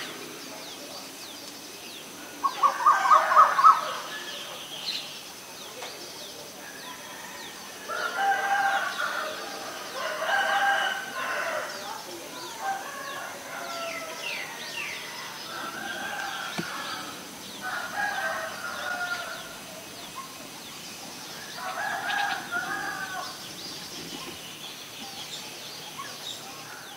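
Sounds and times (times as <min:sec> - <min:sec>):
small birds chirping: 0:00.0 - 0:26.9
rooster crowing: 0:06.7 - 0:11.8, 0:12.6 - 0:19.7, 0:21.4 - 0:23.5.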